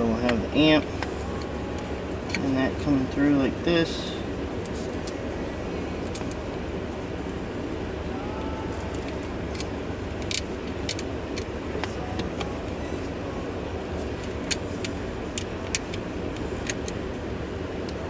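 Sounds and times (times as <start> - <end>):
steady low rumble: 0.0 - 18.0.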